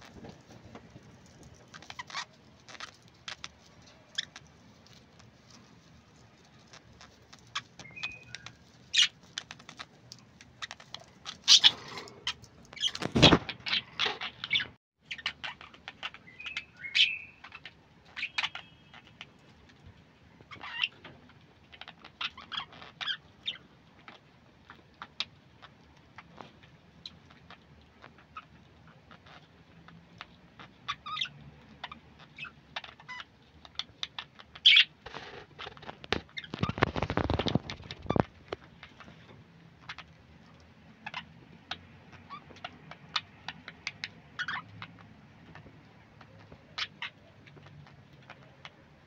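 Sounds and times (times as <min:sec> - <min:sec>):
whistled bird notes: 0:07.8 - 0:08.6, 0:16.3 - 0:17.4
budgerigars chattering: 0:11.3 - 0:13.0, 0:13.6 - 0:19.2, 0:34.0 - 0:34.9.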